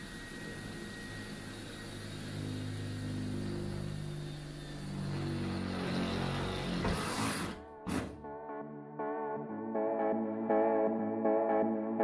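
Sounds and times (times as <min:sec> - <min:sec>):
electric drill boring sheet metal: 0:00.0 - 0:08.0.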